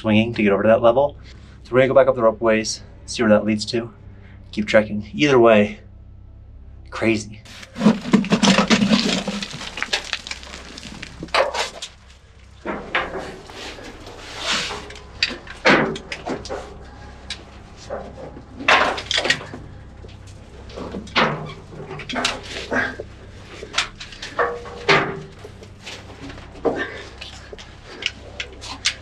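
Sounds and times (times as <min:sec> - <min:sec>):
scrapes and scuffs on rock: 0:07.5 - 0:11.9.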